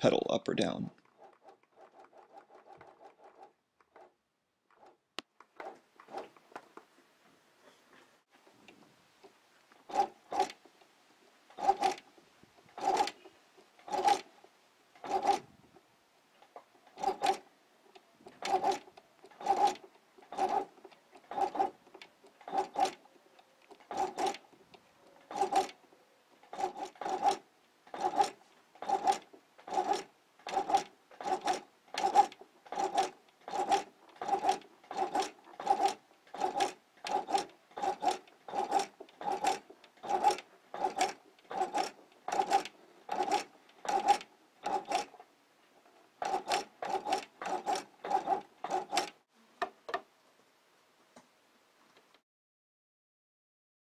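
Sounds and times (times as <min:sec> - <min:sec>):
sewing machine stitching: 0:01.0 - 0:05.0, 0:05.6 - 0:06.4, 0:09.2 - 0:10.7, 0:11.5 - 0:15.5, 0:16.8 - 0:45.2, 0:45.8 - 0:49.2.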